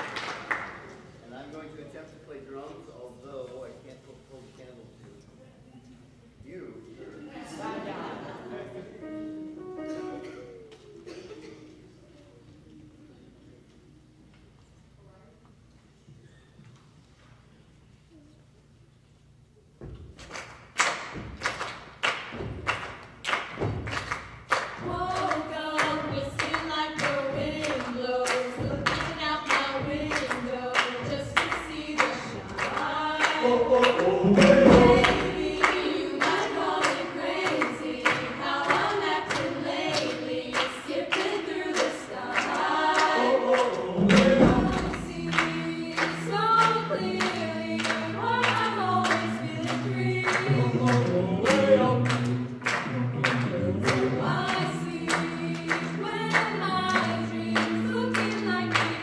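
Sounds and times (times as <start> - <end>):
hand claps: 0.0 - 1.0, 19.9 - 59.0
choir singing a cappella: 7.3 - 12.0, 24.5 - 59.0
amplified voice singing: 24.8 - 59.0.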